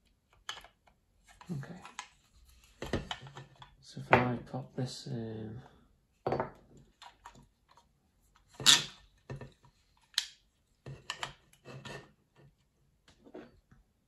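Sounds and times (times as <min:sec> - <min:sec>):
plastic parts clicking and knocking: 0:00.0 - 0:03.8, 0:06.8 - 0:07.8, 0:08.4 - 0:11.8.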